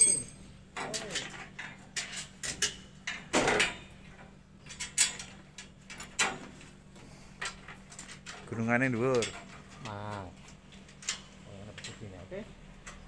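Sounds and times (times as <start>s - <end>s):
metal tubes knocking and scraping: 7.4s - 12.2s.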